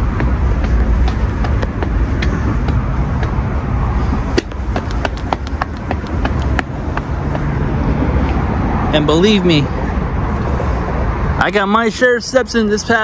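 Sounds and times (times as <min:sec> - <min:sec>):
footsteps on pavement: 0:00.0 - 0:08.4
city traffic rumble: 0:00.0 - 0:13.0.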